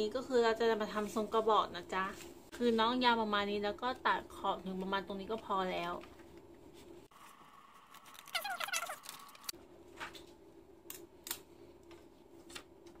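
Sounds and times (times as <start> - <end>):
scissors squeak: 8.1 - 9.4.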